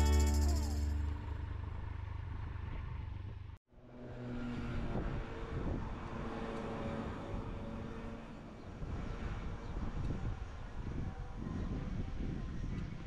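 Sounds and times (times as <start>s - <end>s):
motorcycle engine rumbling: 0.0s - 3.5s
outdoor traffic ambience: 0.0s - 13.0s
vehicle passing: 3.8s - 10.0s
wind noise: 4.7s - 6.3s, 8.6s - 13.0s.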